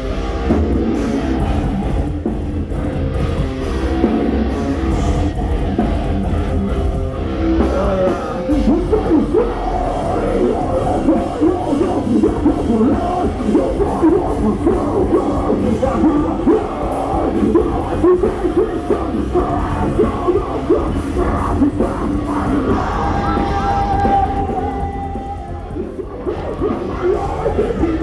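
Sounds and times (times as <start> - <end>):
distorted guitars: 0.0 - 28.0
drums: 0.0 - 28.0
person yelling vocals: 22.4 - 26.0.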